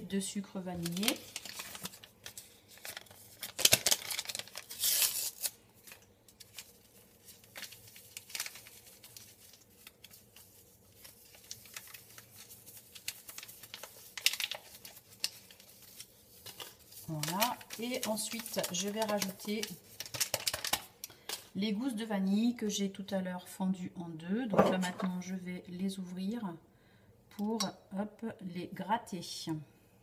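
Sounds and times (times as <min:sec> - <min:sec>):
paper sachets tearing: 0:00.8 - 0:20.9
sachets crinkling: 0:00.8 - 0:21.4.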